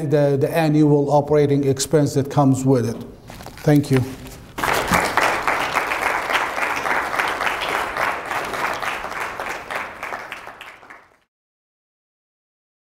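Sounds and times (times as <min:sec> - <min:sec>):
audience applauding: 0:04.6 - 0:11.3.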